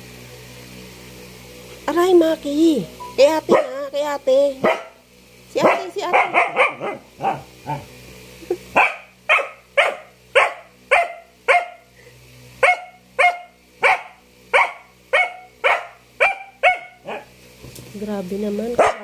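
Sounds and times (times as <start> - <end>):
dog barking: 3.5 - 3.8, 4.6 - 5.0, 5.6 - 7.9, 8.8 - 11.9, 12.6 - 17.3, 18.8 - 19.0.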